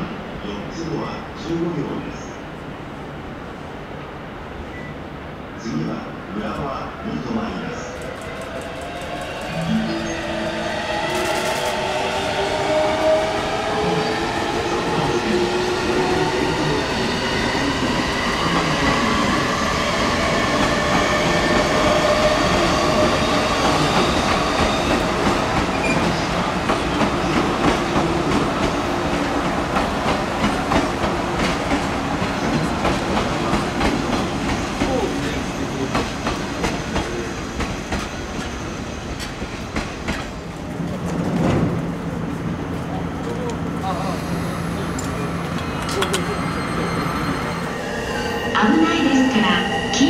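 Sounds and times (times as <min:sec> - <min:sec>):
electric train rumbling past: 0:00.0 - 0:50.0
train whining tones: 0:07.3 - 0:31.8, 0:43.2 - 0:50.0.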